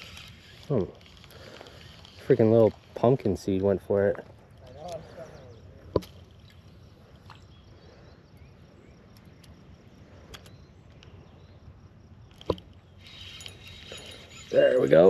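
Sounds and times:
fishing reel clicks: 0.0 - 3.1, 13.0 - 15.0.

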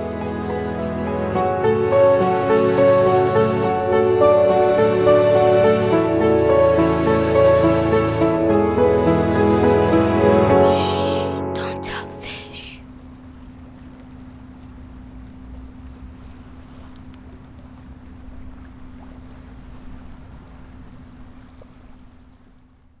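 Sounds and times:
high insect drone: 10.6 - 23.0
crickets chirping: 12.7 - 23.0.

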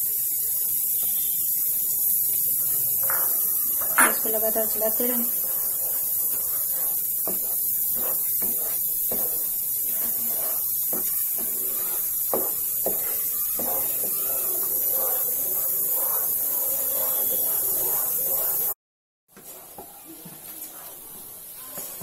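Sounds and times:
steady high hiss: 0.0 - 18.8
spatula scraping a pan: 1.2 - 18.8, 19.4 - 22.0.

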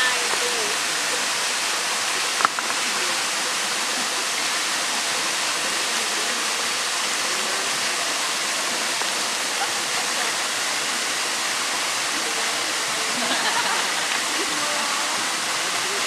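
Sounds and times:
small waterfall rushing: 0.0 - 16.0.

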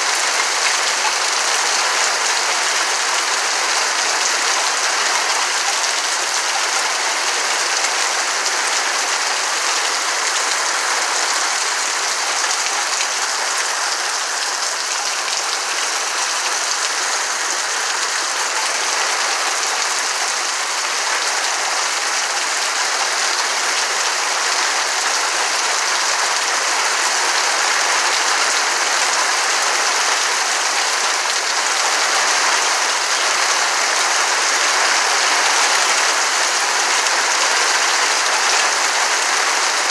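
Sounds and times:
heavy rain on trees: 0.0 - 39.9.

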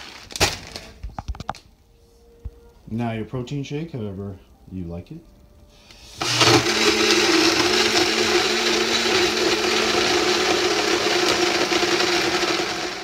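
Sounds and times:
blender motor whirring: 6.1 - 13.0.

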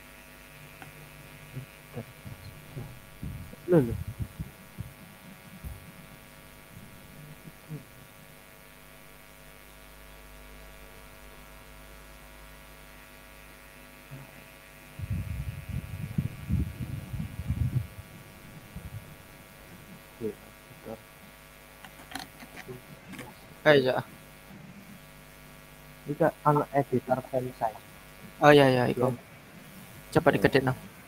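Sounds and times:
electrical mains hum: 0.0 - 31.0
low thumping and rumbling: 2.2 - 7.0.

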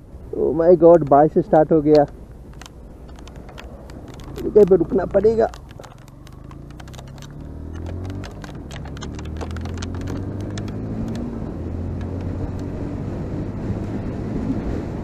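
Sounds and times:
motorcycle engine running: 0.3 - 12.9
raindrops ticking on camera: 0.8 - 11.3.

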